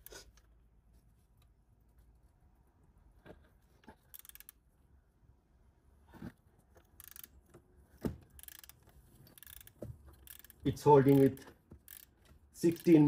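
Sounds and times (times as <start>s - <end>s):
hand ratchet clicking: 4.1s - 4.6s, 6.8s - 7.6s, 8.4s - 13.0s.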